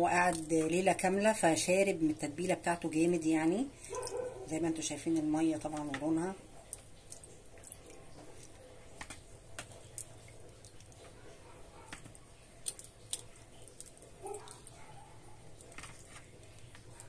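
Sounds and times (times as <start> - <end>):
wet squishes and drips: 5.6 - 17.0.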